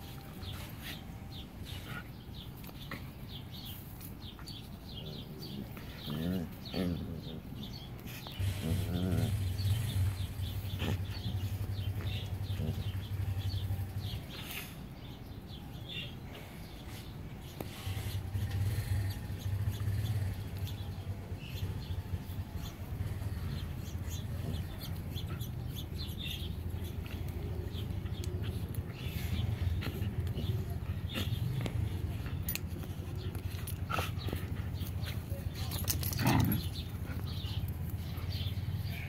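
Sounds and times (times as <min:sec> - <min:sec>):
dog low rumble: 0:04.9 - 0:14.4.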